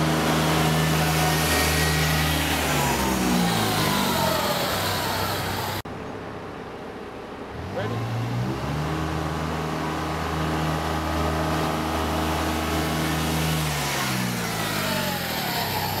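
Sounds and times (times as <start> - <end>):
utility vehicle engine driving past: 0.0 - 5.9.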